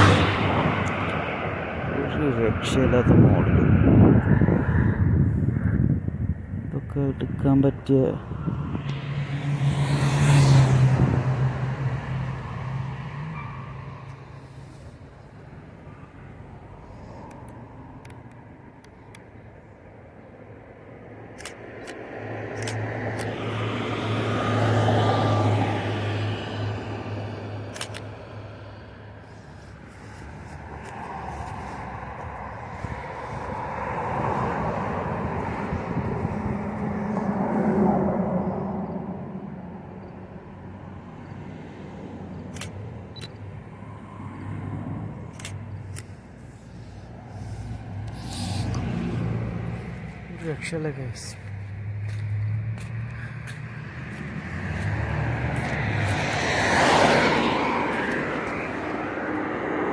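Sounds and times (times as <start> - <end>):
vehicle engine approaching: 8.1 - 19.8, 20.9 - 59.9
camera shutter clicks: 21.3 - 23.3, 27.7 - 28.1, 42.5 - 43.4.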